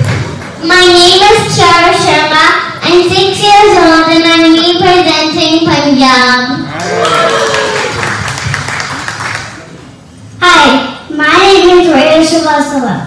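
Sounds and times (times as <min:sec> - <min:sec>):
people clapping: 0:00.0 - 0:00.6, 0:06.7 - 0:09.8.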